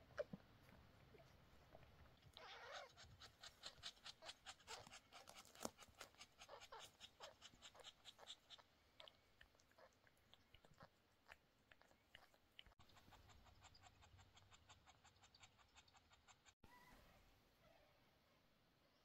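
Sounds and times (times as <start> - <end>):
cat licking wet licks: 7.7 - 12.8.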